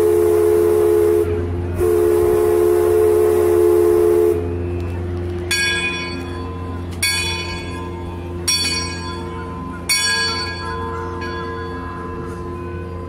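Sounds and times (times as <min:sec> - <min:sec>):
steady low hum: 0:00.0 - 0:13.0
large bell ringing: 0:04.3 - 0:13.0.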